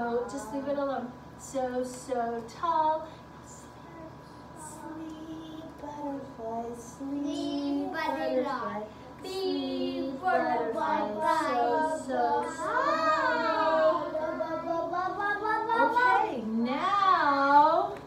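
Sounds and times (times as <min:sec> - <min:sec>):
young children singing: 0:04.6 - 0:16.0.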